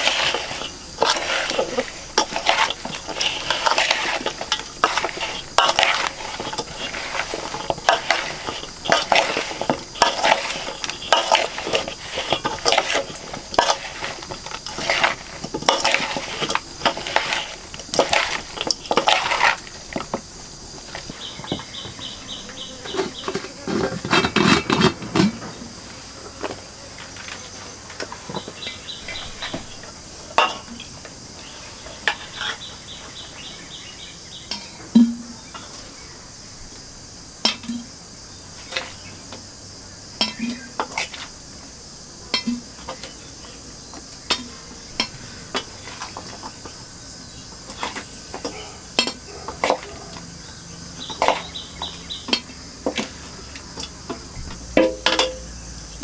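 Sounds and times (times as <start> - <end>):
metal spoon scraping steel bowl: 0.0 - 20.1.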